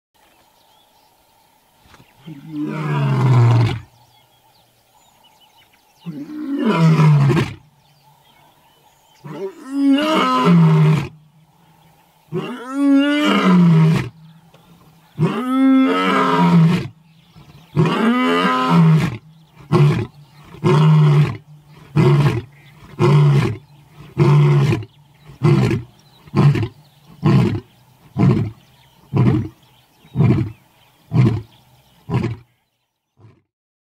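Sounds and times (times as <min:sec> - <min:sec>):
lion roaring: 0:02.2 - 0:03.9, 0:09.2 - 0:11.2, 0:15.1 - 0:32.5.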